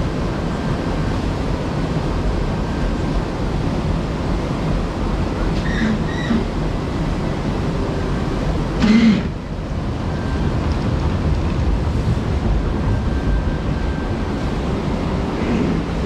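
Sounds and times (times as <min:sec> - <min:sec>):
low rumble: 0:09.8 - 0:14.8.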